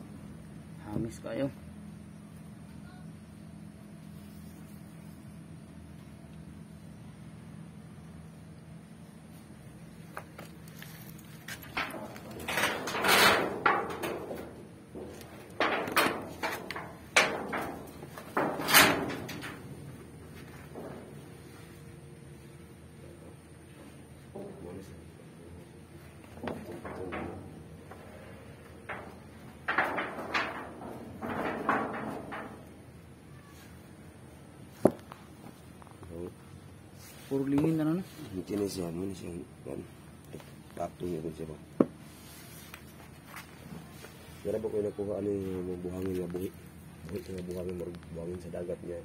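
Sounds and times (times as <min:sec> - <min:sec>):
scraping on rough ground: 0:10.1 - 0:22.5.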